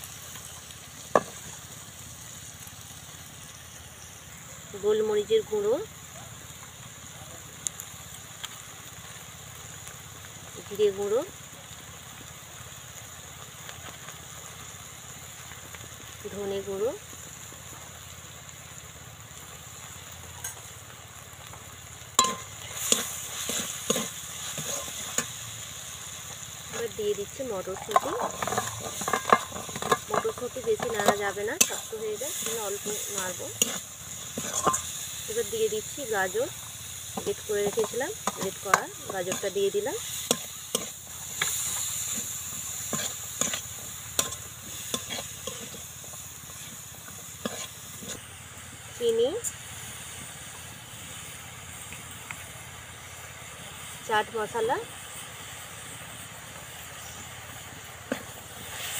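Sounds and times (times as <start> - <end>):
faint sizzle of frying: 0.0 - 58.9
metal spatula scraping a pan: 22.2 - 25.4, 27.7 - 35.4, 37.2 - 45.9, 47.4 - 48.2
metal spatula scraping steel pan: 27.8 - 34.9.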